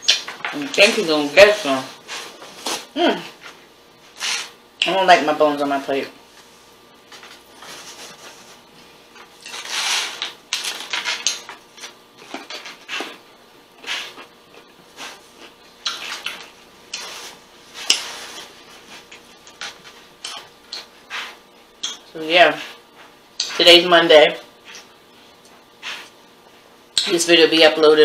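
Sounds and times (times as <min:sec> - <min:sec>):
crunching and chewing food: 0:06.4 - 0:23.6
paper napkin crumpling: 0:07.2 - 0:08.6.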